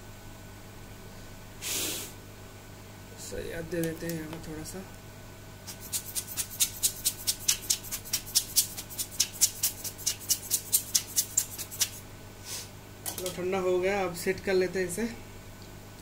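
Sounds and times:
rubber air blower puffing: 1.6 - 2.2.

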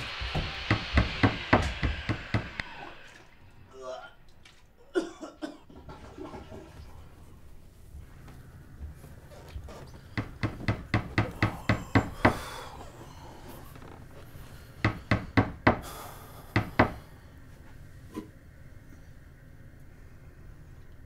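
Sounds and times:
scraping hiss: 0.0 - 3.7, 6.3 - 20.9
hammer striking wood: 0.2 - 2.6, 10.2 - 12.4, 14.8 - 15.9, 16.6 - 17.0.

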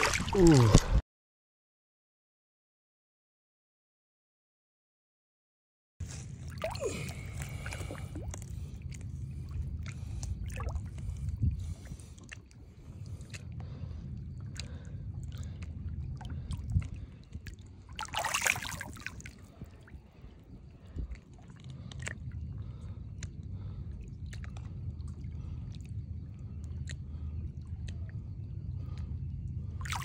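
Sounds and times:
water sloshing and trickling: 0.0 - 1.0, 6.0 - 30.0
fish splashing: 6.1 - 11.0, 18.0 - 19.3.

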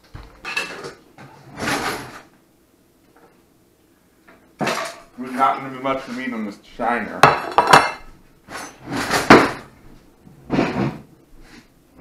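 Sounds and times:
dishes clattering on wooden table: 0.2 - 1.9, 4.6 - 5.1, 7.2 - 9.6, 10.5 - 11.1.

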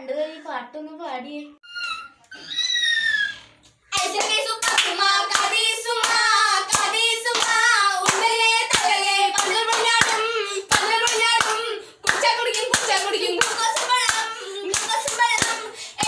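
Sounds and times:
hands clapping to a beat: 4.0 - 15.7
woman singing: 4.0 - 16.0.

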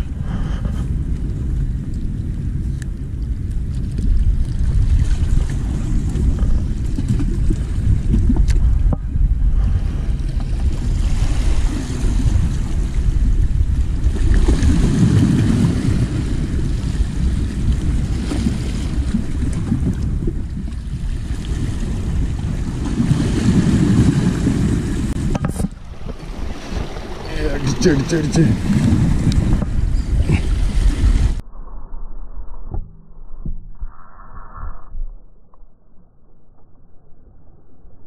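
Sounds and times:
wind buffeting microphone: 0.0 - 35.2
small waves washing against rocks: 13.8 - 31.4.

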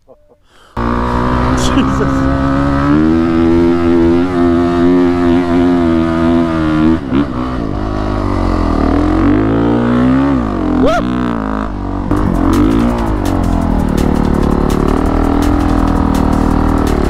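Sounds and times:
dirt bike engine revving: 0.8 - 17.0.

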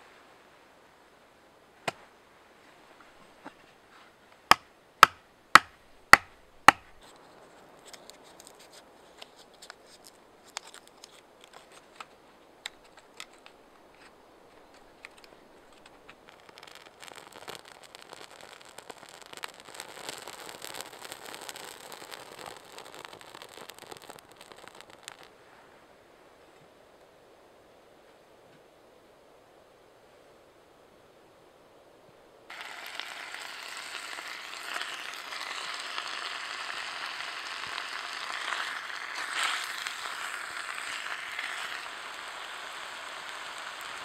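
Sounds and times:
tinder crackling on fire: 4.4 - 26.1, 32.5 - 44.0
tinder clicks and scratches: 5.0 - 25.3, 32.5 - 44.0.

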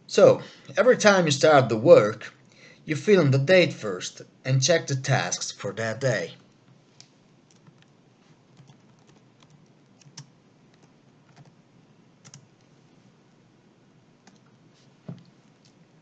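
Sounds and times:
computer keyboard typing: 7.5 - 11.6, 12.2 - 12.5, 14.2 - 14.5.

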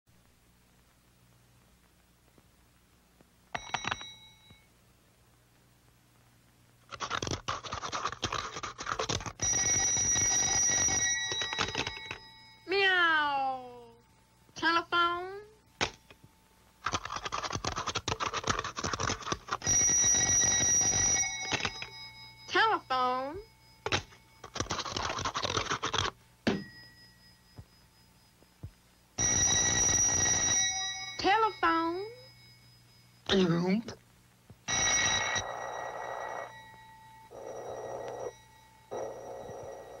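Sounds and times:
cartoon telephone bell ringing: 3.6 - 4.7, 9.4 - 13.3, 19.6 - 26.0, 29.2 - 33.6, 34.7 - 40.0.

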